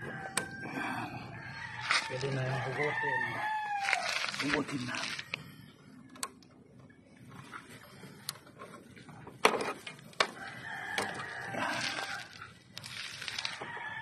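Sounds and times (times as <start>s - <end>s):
rooster crowing: 0.0s - 4.4s, 10.2s - 12.4s, 13.3s - 14.0s.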